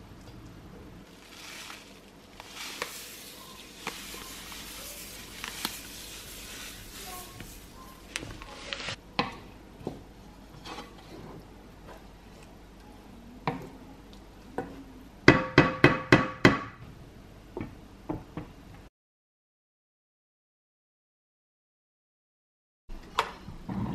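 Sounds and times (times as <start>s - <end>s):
spoon stirring in a pan: 1.1s - 9.0s.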